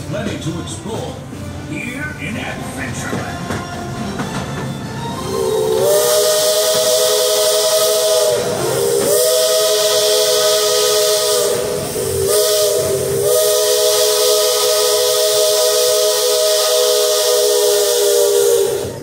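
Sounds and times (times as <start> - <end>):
high steam hiss: 5.1 - 19.0
chime steam whistle blasts: 5.2 - 19.0.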